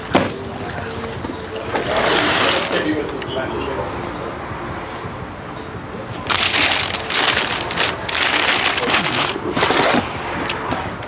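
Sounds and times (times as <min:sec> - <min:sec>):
packaging crinkling and rustling: 0:06.3 - 0:10.1.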